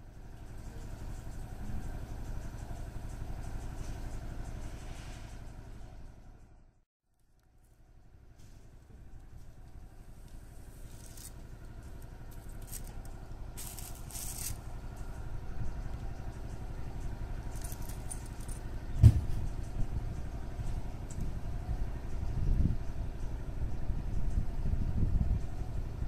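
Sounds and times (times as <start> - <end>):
low engine-like rumble: 0.0 - 26.0
plastic packets rustling: 12.4 - 14.6
thump: 19.0 - 19.4.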